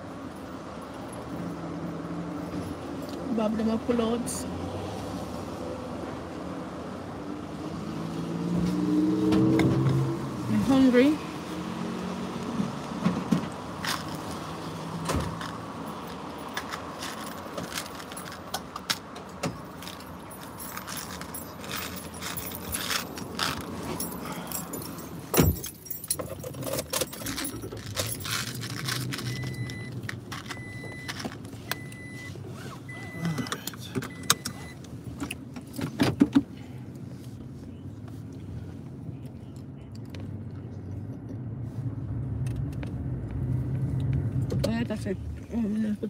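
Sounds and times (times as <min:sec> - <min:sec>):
jangling and clicking handling noises: 0:13.8 - 0:14.5, 0:15.2 - 0:32.7
car warning chime beeping: 0:29.2 - 0:34.9.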